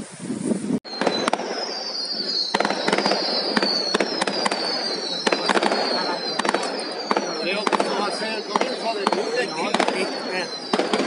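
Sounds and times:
falling firework whistles: 0.4 - 11.0
fireworks bangs: 0.8 - 11.0.

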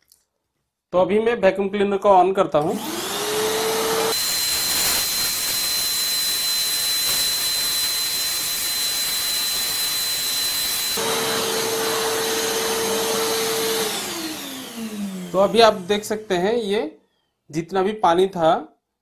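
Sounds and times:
vacuum cleaner motor hum: 2.7 - 16.4.

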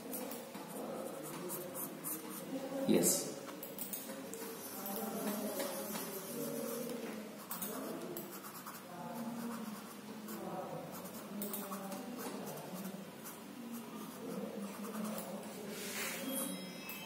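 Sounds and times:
pencil scratching on paper: 0.7 - 2.5, 4.5 - 11.3.

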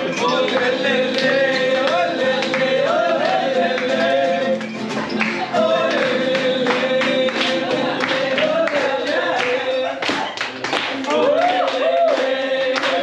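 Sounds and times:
person singing: 0.0 - 10.4, 11.0 - 13.0
plucked guitar: 0.0 - 11.4
latin music: 0.0 - 13.0
people clapping: 0.0 - 13.0.

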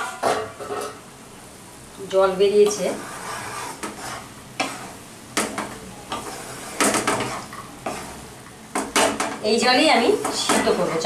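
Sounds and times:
vegetables sizzling: 0.0 - 11.0
spatula scraping a pan: 2.6 - 11.0.

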